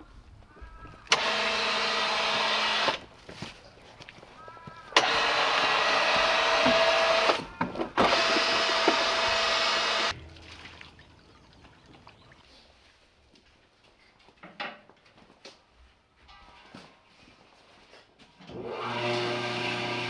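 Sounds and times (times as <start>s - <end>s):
electric motor humming: 1.1s - 3.0s, 5.0s - 7.4s, 8.0s - 10.1s, 18.6s - 20.0s.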